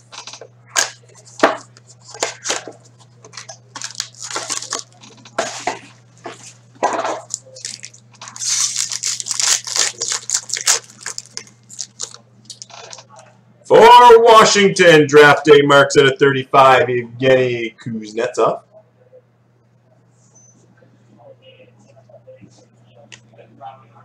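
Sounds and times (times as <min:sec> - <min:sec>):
foil pack ripping: 0:03.3 - 0:05.4, 0:07.3 - 0:13.0
shrink-wrap and cardboard tearing: 0:03.3 - 0:05.4, 0:07.3 - 0:13.0.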